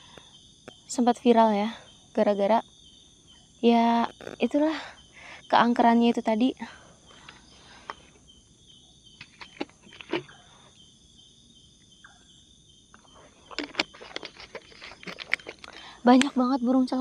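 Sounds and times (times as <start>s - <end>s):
crickets and insects chirping: 0.0s - 17.0s
plastic water bottle crackling: 13.5s - 15.8s.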